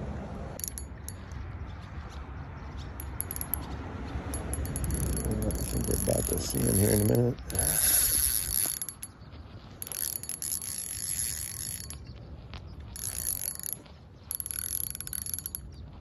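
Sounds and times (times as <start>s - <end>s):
fishing reel ratcheting: 4.5s - 9.1s, 9.8s - 12.0s, 13.0s - 15.6s.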